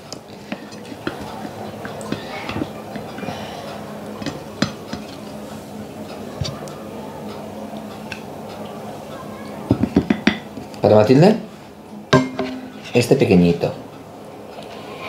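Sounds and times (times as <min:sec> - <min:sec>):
faint steady hum: 0:00.0 - 0:15.0
utensil clinking on plates: 0:12.1 - 0:13.1.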